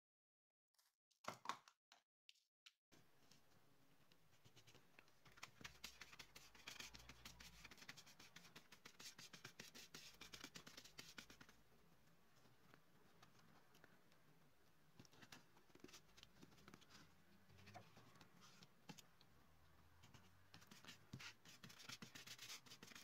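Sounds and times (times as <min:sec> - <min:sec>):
glue brush scraping cardboard: 0:20.1 - 0:23.0.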